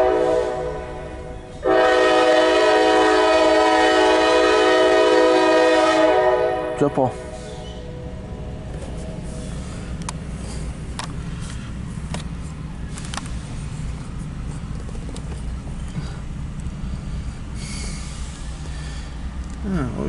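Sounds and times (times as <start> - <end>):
car engine rumble: 7.1 - 20.0
short hiss: 17.6 - 19.2.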